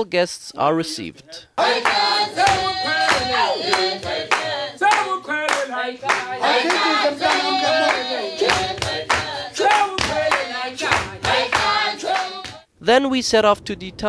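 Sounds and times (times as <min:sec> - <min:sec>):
group of voices chanting: 0:01.6 - 0:12.6
sharp percussive beats: 0:01.6 - 0:12.6.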